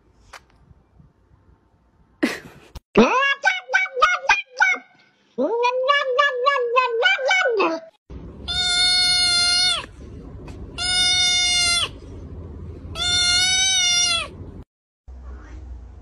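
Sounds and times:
kitten meowing: 0:08.5 - 0:09.9, 0:10.8 - 0:12.0, 0:13.0 - 0:14.3.

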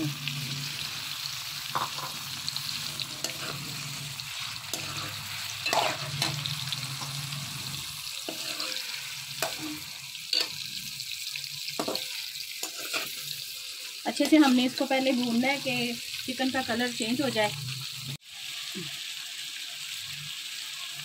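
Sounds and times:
chicken sizzling in oil: 0:00.0 - 0:21.0
metal spoon scraping a pan: 0:01.6 - 0:15.8.

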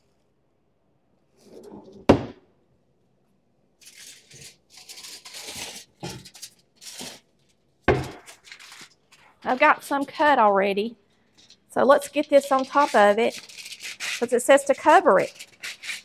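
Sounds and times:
drawer knocking shut: 0:02.0 - 0:02.4
aluminium foil rustling: 0:03.8 - 0:16.0.

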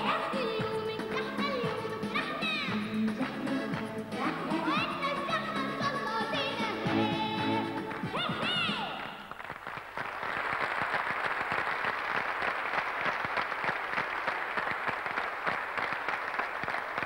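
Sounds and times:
audience applauding: 0:07.5 - 0:17.0.

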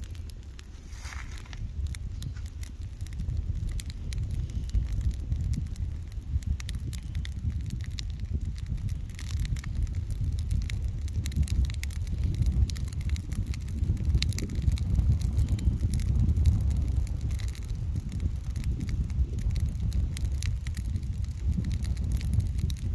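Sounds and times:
fire crackling in dry leaves: 0:00.0 - 0:22.9
low fire rumble: 0:00.0 - 0:22.9.

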